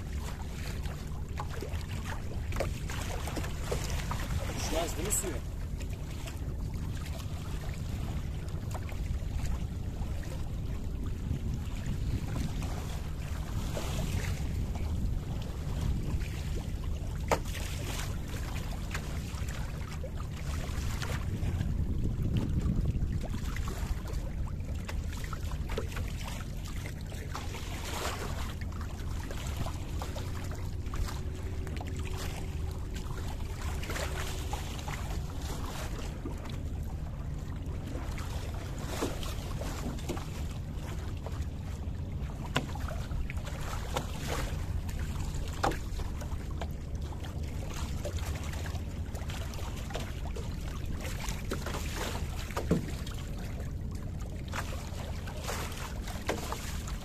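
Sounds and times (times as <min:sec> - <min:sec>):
light knocks from boat: 0:00.0 - 0:57.0
water washing along hull: 0:00.0 - 0:57.0
wind buffeting microphone: 0:07.6 - 0:17.2, 0:20.7 - 0:24.8.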